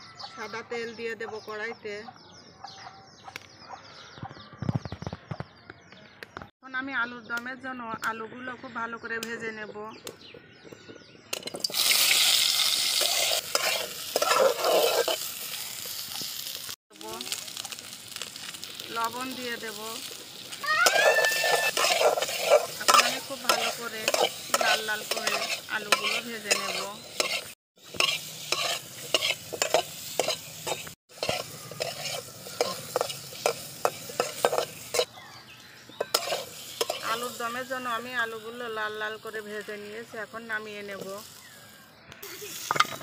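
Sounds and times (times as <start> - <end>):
metal spatula scraping pan: 11.4 - 16.4, 20.9 - 35.1, 36.0 - 37.5
potatoes sizzling in hot oil: 11.4 - 35.1, 36.0 - 43.0.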